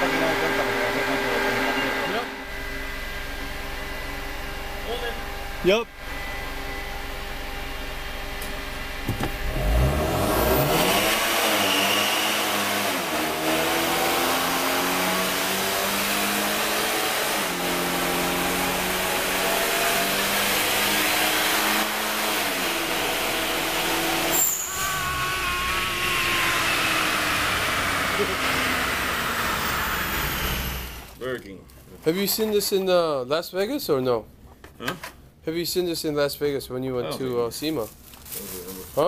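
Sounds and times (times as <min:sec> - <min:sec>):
car engine revving hard: 0:00.0 - 0:03.0, 0:08.9 - 0:31.2
sharp engine burst: 0:20.6 - 0:31.1.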